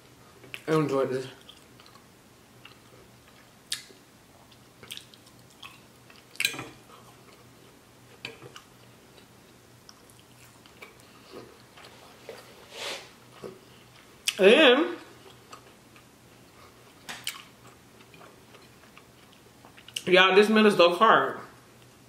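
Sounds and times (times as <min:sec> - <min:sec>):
person chewing: 0:01.4 - 0:12.6, 0:15.1 - 0:20.1.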